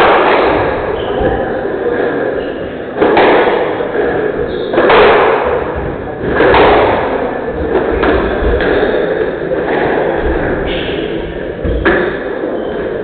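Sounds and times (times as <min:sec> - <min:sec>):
squash ball hits: 0:00.0 - 0:01.4, 0:03.0 - 0:08.9.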